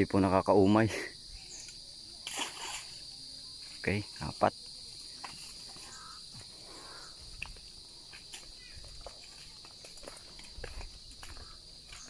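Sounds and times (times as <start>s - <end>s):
insects chirring: 0.0s - 12.0s
footsteps on dirt path: 5.6s - 12.0s.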